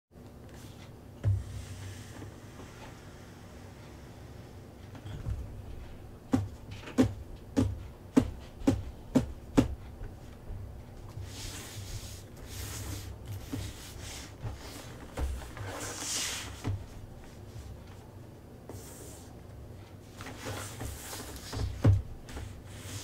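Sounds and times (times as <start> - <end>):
low steady hum: 0.2 - 23.0
soft rustling and handling: 0.3 - 1.0, 9.9 - 23.0.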